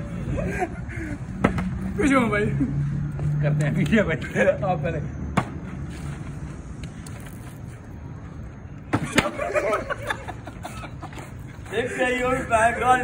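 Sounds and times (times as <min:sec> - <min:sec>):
men's voices: 0:00.0 - 0:05.2, 0:08.9 - 0:13.0
traffic and wind background: 0:00.0 - 0:13.0.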